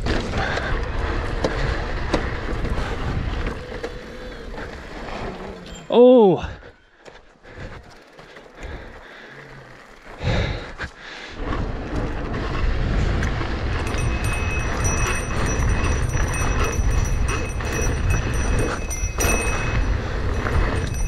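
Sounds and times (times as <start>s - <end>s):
bike tyres and frame rattling: 0.0s - 21.0s
wind buffeting microphone: 0.3s - 4.4s, 11.4s - 21.0s.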